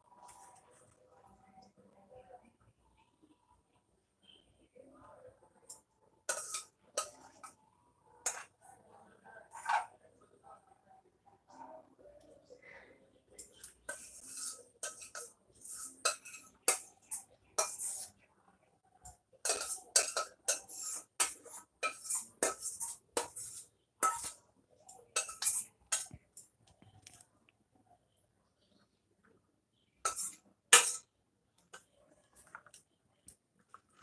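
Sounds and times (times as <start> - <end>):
metal spoon scraping a pan: 5.6 - 7.6, 8.2 - 8.8, 9.4 - 10.0, 13.4 - 18.3, 19.1 - 26.5, 30.0 - 31.1.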